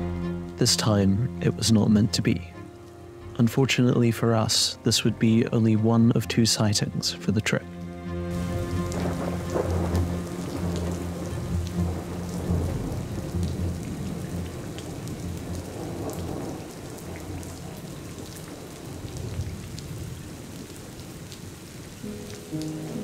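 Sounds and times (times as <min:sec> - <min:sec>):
low thunder rumble: 0:08.3 - 0:21.3
heavy rain falling: 0:08.3 - 0:23.0
raindrop ticks: 0:08.4 - 0:23.0.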